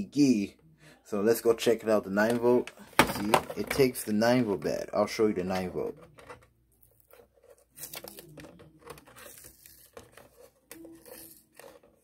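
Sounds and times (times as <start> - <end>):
tape peeling and crinkling: 6.7 - 12.0.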